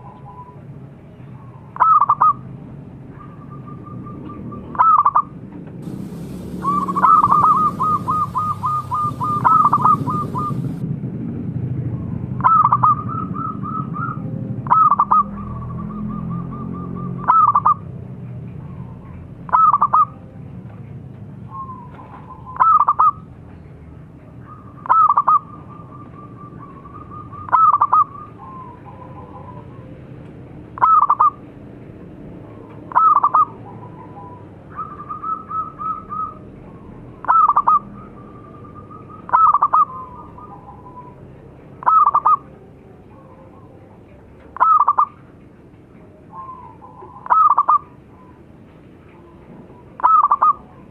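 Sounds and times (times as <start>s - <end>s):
doves cooing: 3.1s - 10.8s, 24.5s - 31.4s, 32.6s - 45.2s, 46.3s - 48.4s, 49.1s - 50.9s.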